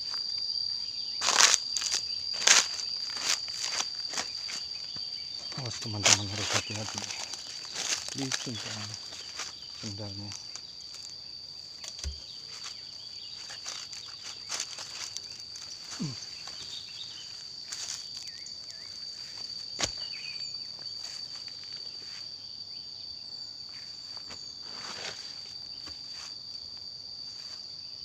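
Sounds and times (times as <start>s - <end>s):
rustling vegetation: 0.0s - 22.0s
high insect drone: 0.0s - 28.0s
footsteps on rocky trail: 1.2s - 5.4s, 6.0s - 11.2s, 11.8s - 18.4s, 19.3s - 20.2s.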